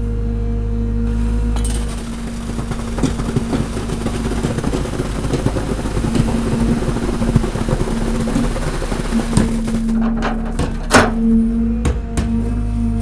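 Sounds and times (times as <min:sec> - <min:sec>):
construction machine engine hum: 0:00.0 - 0:13.0
wet concrete splattering: 0:01.8 - 0:10.9.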